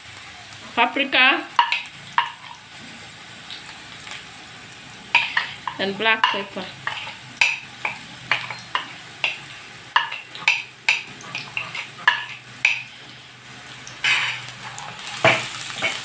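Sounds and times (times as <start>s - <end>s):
onions sizzling in oil: 0.0s - 16.0s
spatula scraping and knocking pan: 1.5s - 2.6s, 5.1s - 13.2s, 14.0s - 16.0s.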